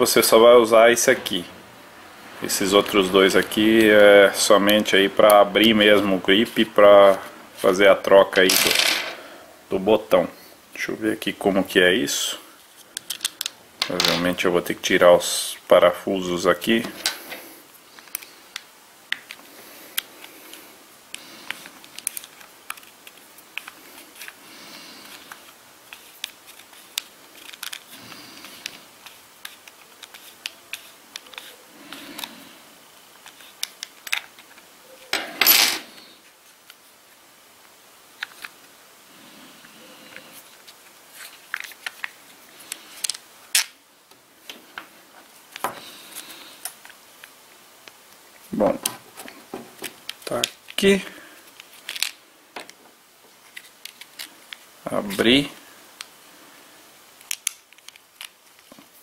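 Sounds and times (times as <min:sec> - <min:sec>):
plastic parts handled: 0:12.6 - 0:14.4, 0:18.0 - 0:24.4, 0:25.0 - 0:32.4, 0:33.2 - 0:36.8, 0:38.1 - 0:38.7, 0:40.1 - 0:43.8, 0:48.7 - 0:55.4, 0:57.2 - 0:59.0.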